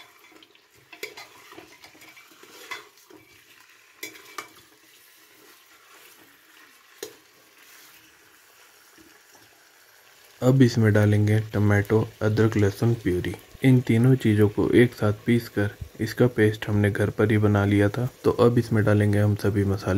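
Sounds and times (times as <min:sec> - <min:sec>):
metal spatula scraping a pot: 0:00.0 - 0:08.2
faint sizzle: 0:00.0 - 0:19.9.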